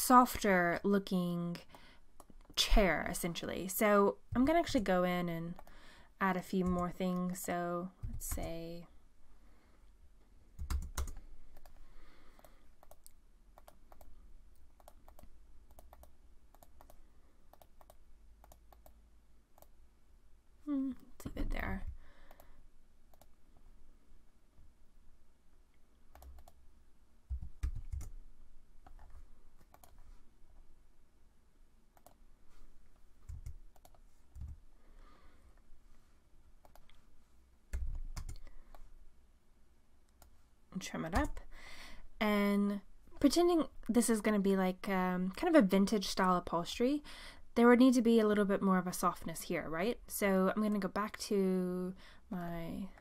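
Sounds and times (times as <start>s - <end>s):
computer mouse clicking: 5.5s - 5.7s, 10.6s - 19.0s, 23.1s - 23.4s, 26.1s - 26.6s, 28.8s - 30.1s, 31.9s - 32.2s, 33.2s - 34.6s, 36.6s - 37.0s
mouse clicks: 14.8s - 19.0s, 23.1s - 23.4s
computer keyboard key presses: 27.3s - 28.1s.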